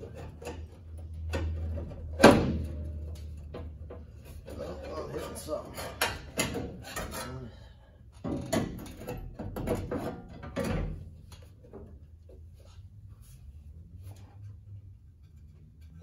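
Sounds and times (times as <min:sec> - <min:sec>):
sheet metal knocking and scraping: 0:00.0 - 0:07.4, 0:08.2 - 0:12.0.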